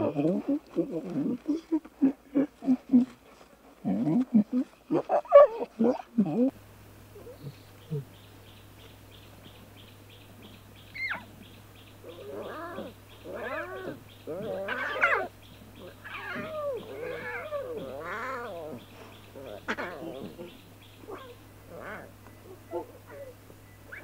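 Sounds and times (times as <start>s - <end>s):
lion cubs calling: 0.0s - 24.0s
lion cub squeak: 10.9s - 11.3s, 12.1s - 18.8s, 21.0s - 24.0s.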